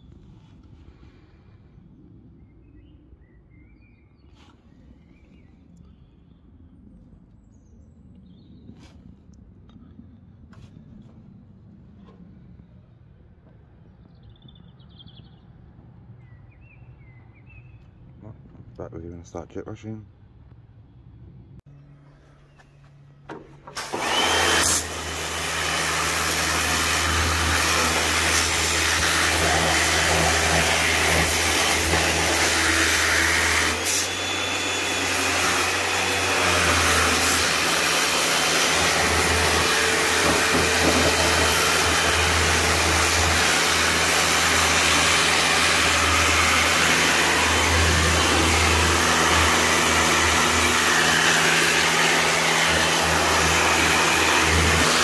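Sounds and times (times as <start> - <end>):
pressure washer motor hum: 22.9 - 55.0.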